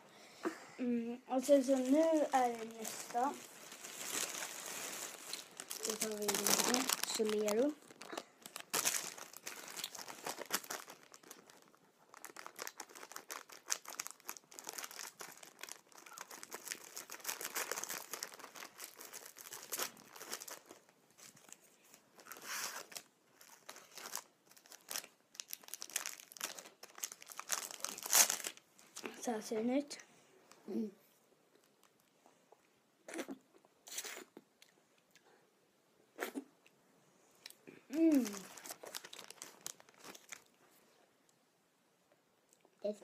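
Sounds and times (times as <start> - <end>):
plastic wrapper crinkling and tearing: 1.3 - 29.1, 31.6 - 32.1, 37.9 - 40.6.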